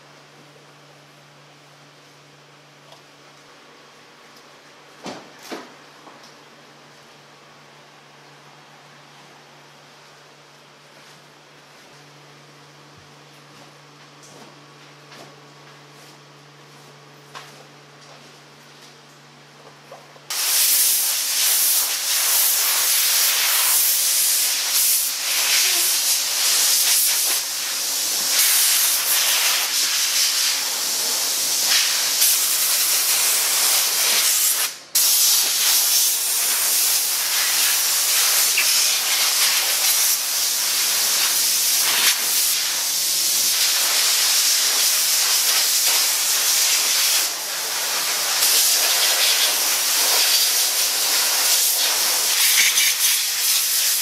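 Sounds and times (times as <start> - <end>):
steam gun hissing: 20.3 - 54.0.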